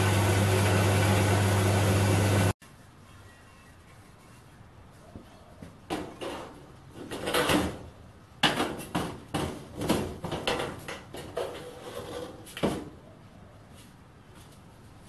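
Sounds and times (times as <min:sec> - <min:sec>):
metal clunks and rattles: 0:05.9 - 0:11.7
metal scraping on steel panel: 0:10.2 - 0:12.6.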